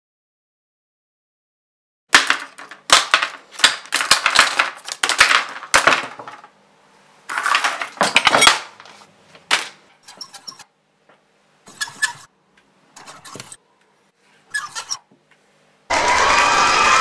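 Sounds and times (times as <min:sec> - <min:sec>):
plastic propellers clattering on table: 0:02.2 - 0:06.5.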